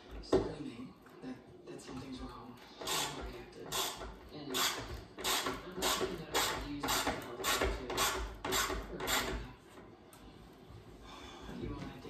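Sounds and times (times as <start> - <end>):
ratchet wrench strokes: 2.8 - 9.4.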